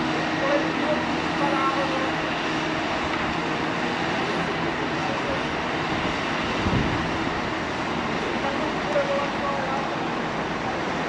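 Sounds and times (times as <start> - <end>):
diesel excavator engine: 0.0 - 11.0
site machinery running: 0.0 - 11.0.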